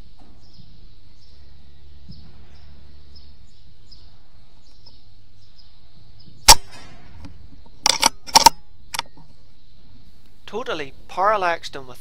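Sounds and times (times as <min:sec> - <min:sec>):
air rifle shot: 0:06.4 - 0:07.3
sharp clicks: 0:06.5 - 0:09.4.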